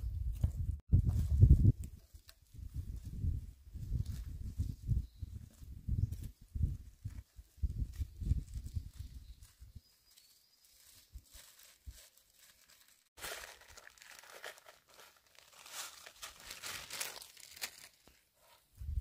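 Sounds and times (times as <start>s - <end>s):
plastic bag crinkling: 10.8s - 18.2s.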